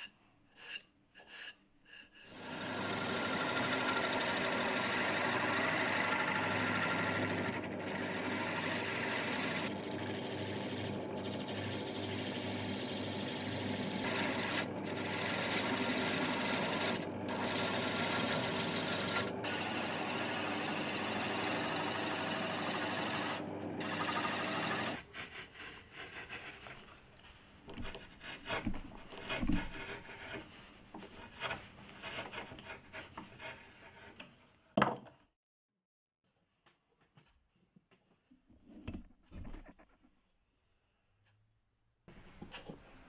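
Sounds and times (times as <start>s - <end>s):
hand tool scraping wood: 0.0s - 9.7s, 13.8s - 34.5s
chisel shaving spinning wood: 0.7s - 27.1s, 27.7s - 34.2s
wood lathe humming: 2.3s - 26.6s.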